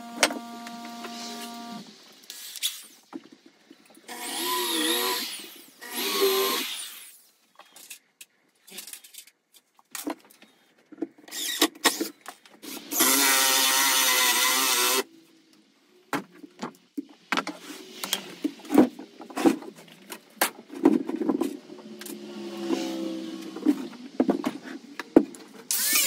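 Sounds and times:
electric drill drilling wood: 0.0s - 1.8s, 4.1s - 7.2s, 12.6s - 15.1s, 25.7s - 26.0s
wood and tool clatter: 16.2s - 25.6s.

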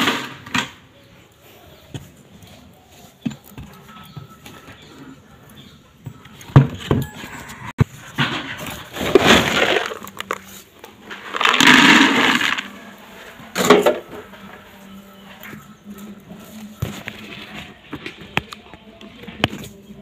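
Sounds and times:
pellets pouring into bucket: 8.7s - 13.9s.

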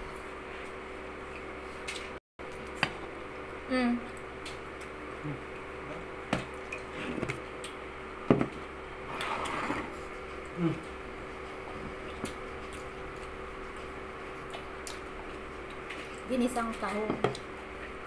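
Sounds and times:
steady low hum: 0.0s - 18.0s
person humming: 3.7s - 4.1s, 5.2s - 6.0s, 10.5s - 11.0s.

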